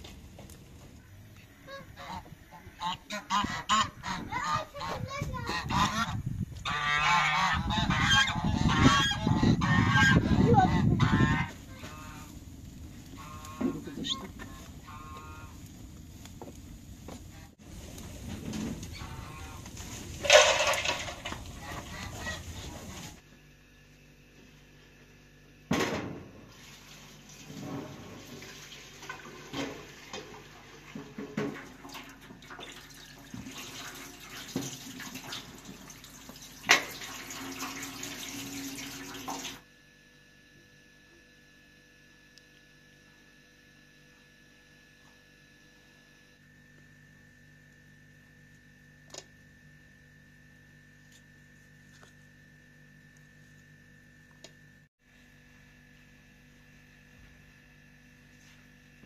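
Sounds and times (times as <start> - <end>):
faint steady hum: 0.0 - 59.0
metal pots clanking: 20.2 - 21.4
tap water into metal sink: 28.3 - 39.6.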